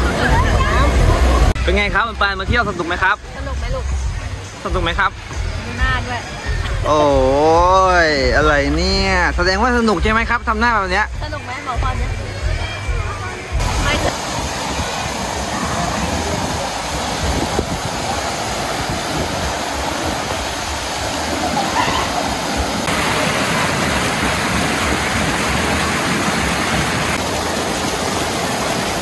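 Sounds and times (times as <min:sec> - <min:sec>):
water rushing over rock ledges: 0:00.0 - 0:03.3, 0:13.5 - 0:29.0.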